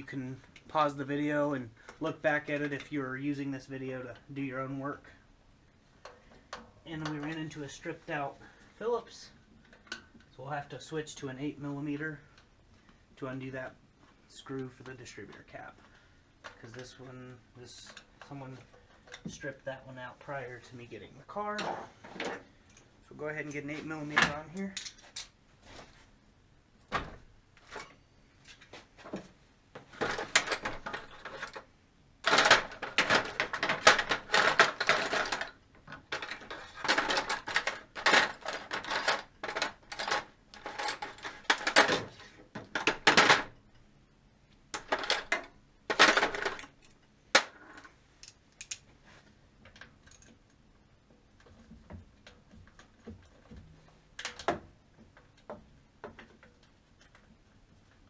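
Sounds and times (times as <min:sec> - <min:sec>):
metal tools clinking and clattering: 0:24.6 - 0:25.3, 0:32.3 - 0:42.0.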